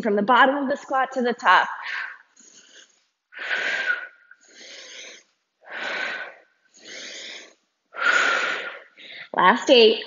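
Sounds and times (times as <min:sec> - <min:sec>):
woman breathing hard: 0:01.8 - 0:09.4.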